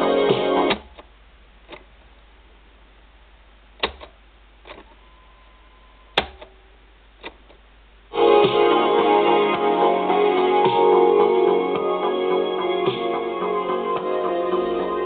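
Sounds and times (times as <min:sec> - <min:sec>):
music from cassette recorder: 0:00.0 - 0:01.0, 0:08.1 - 0:15.0
tape hiss and low hum: 0:00.0 - 0:15.0.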